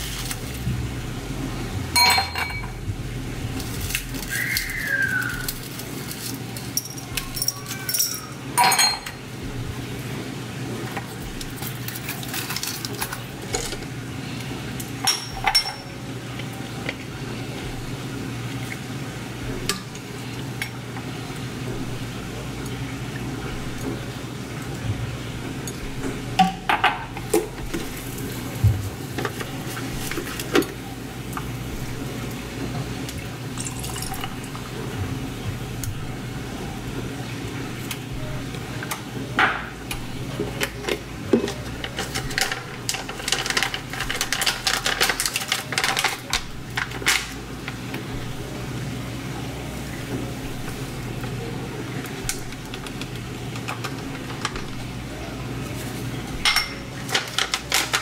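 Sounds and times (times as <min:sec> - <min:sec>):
glass clinking: 0:02.0 - 0:02.8, 0:06.8 - 0:09.2, 0:15.0 - 0:15.9, 0:56.4 - 0:56.9
liquid pouring onto ice: 0:33.6 - 0:34.5.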